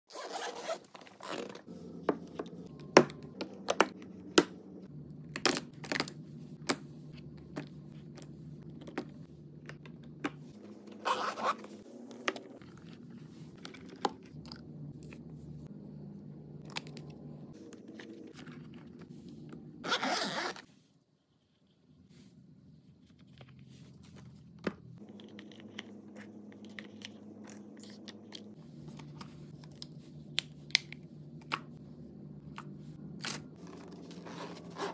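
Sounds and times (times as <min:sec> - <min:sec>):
zipper pull: 0:00.1 - 0:01.7, 0:11.0 - 0:11.7, 0:19.8 - 0:20.7
faint low hum: 0:01.3 - 0:34.9.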